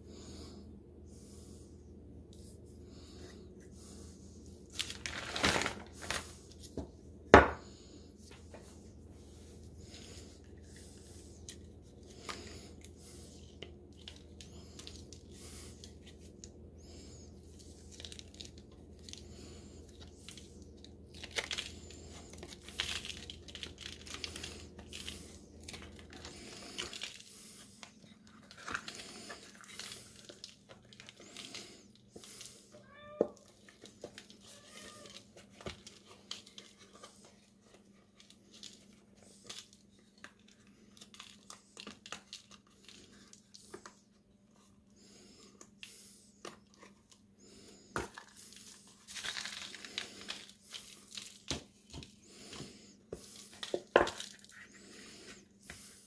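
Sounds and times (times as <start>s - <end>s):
low background hum: 0.0s - 56.0s
rubbery rustling and scraping: 4.7s - 6.9s.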